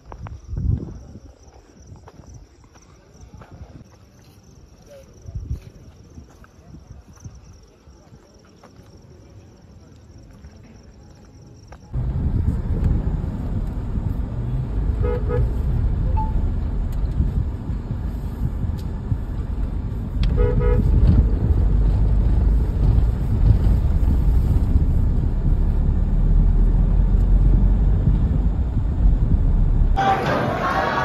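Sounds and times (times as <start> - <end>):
car cabin engine and road noise: 11.9 - 31.0
car horn toots: 15.0 - 16.4, 20.3 - 21.0, 30.0 - 31.0.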